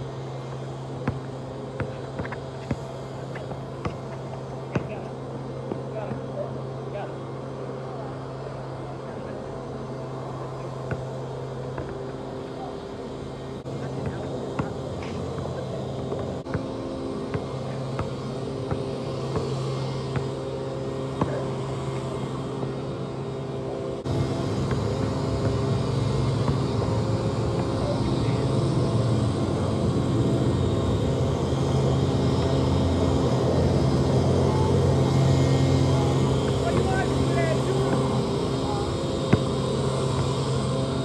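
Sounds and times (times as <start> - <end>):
steady low hum: 0.0 - 41.0
basketball bouncing on asphalt: 0.2 - 6.2, 10.6 - 12.2, 13.8 - 22.8, 24.6 - 26.8, 39.3 - 40.6.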